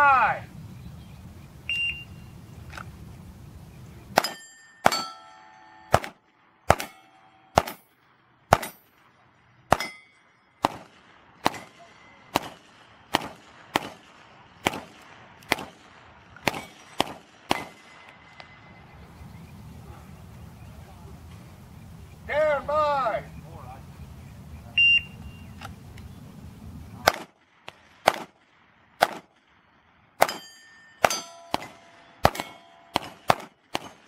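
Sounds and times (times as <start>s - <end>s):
pistol shots: 4.2s - 5.2s, 5.9s - 7.9s, 8.5s - 18.5s, 27.0s - 34.0s
steel plate ringing: 4.2s - 6.0s, 6.8s - 7.9s, 9.8s - 10.5s, 30.2s - 33.4s.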